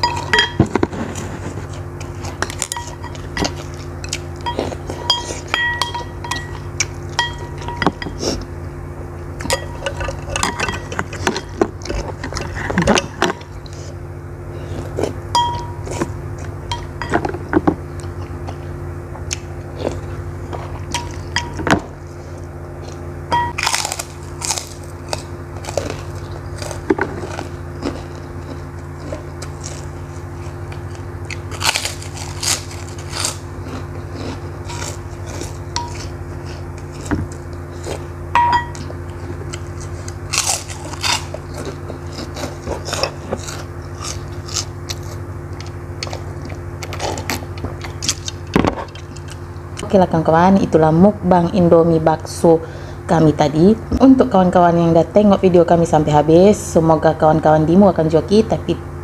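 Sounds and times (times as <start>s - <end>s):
close chewing: 0.0s - 8.5s, 22.2s - 49.9s
crackers crunching: 0.0s - 8.5s, 9.2s - 14.0s, 14.6s - 49.9s
steady low hum: 0.0s - 59.0s.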